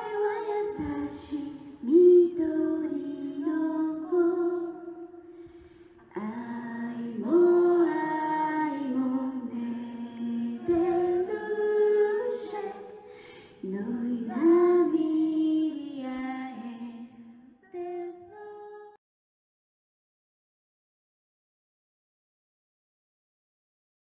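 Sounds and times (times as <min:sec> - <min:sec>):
woman singing into microphone: 0:00.0 - 0:05.2, 0:06.0 - 0:19.0.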